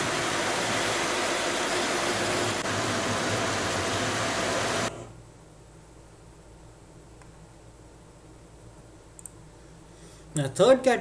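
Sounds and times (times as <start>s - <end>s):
grinding machine hiss and hum: 0.0s - 5.2s.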